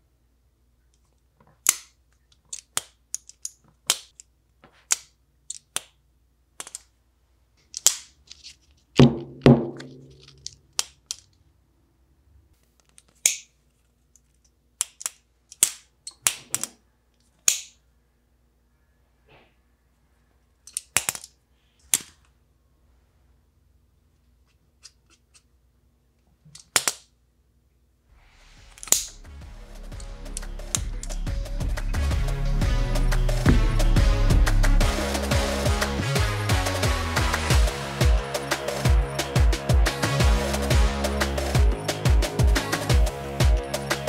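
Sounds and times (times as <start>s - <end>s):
folding knife clicking open and shut: 1.6s - 4.3s, 6.6s - 6.9s, 12.8s - 13.5s, 14.8s - 16.8s, 17.4s - 17.8s, 20.7s - 21.3s, 26.6s - 27.0s, 28.8s - 29.2s.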